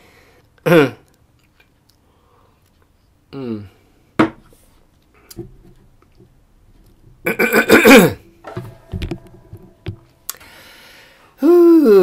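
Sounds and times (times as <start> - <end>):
microphone stand knocks and clicks: 8.4 - 10.1
man's throaty vocal sound: 11.4 - 12.0.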